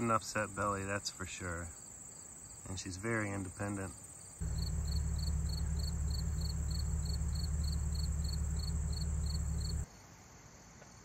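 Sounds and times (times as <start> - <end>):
insects chirping: 4.0 - 9.9
high insect trill: 4.2 - 9.9
loud low hum: 4.4 - 9.8.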